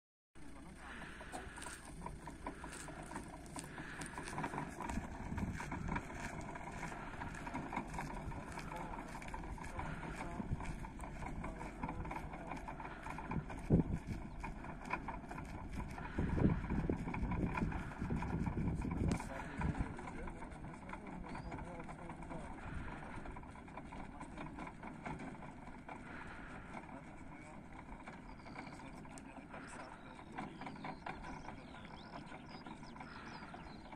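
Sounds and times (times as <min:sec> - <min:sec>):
small birds chirping: 0:00.4 - 0:23.3, 0:25.4 - 0:33.9
distant vehicle: 0:00.4 - 0:33.9
van rolling low rumble: 0:00.4 - 0:33.9
wind on microphone: 0:04.0 - 0:20.3.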